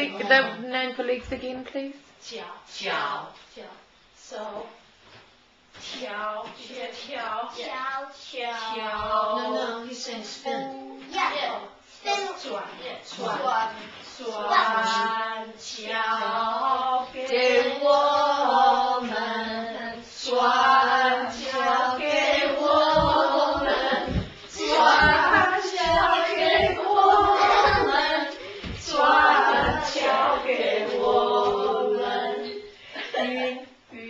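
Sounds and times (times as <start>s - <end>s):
woman and children singing: 5.8s - 11.2s, 12.4s - 34.0s
feet thudding on floor: 22.6s - 30.2s.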